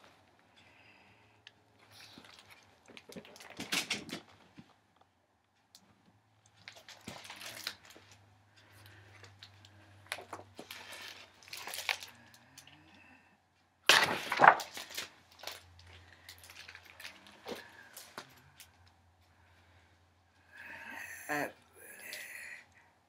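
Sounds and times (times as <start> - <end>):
paper pages rustling: 14.0 - 18.3.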